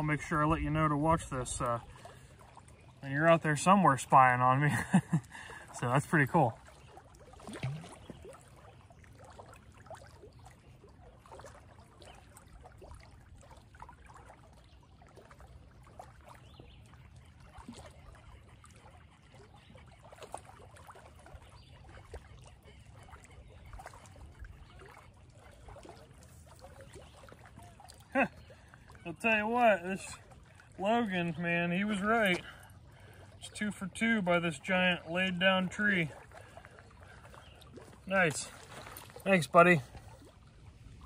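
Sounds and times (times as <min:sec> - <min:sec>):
small waves lapping on rocks: 0:00.0 - 0:41.0.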